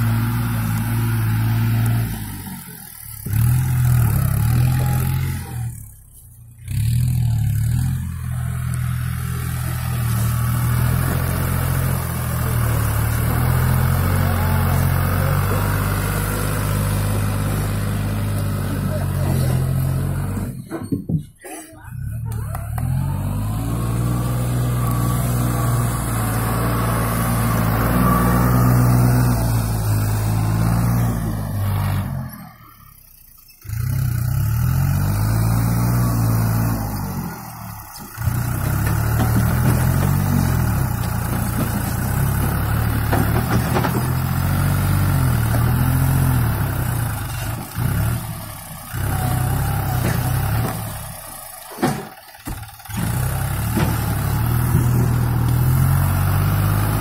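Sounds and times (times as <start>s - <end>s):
tractor diesel engine under load: 0.0s - 57.0s.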